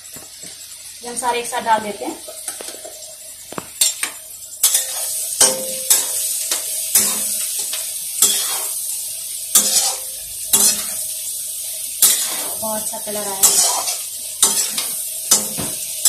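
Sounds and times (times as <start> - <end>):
food sizzling in hot oil: 0.0 - 16.0
spatula scraping a pan: 3.8 - 8.8, 9.5 - 11.1, 12.0 - 15.8.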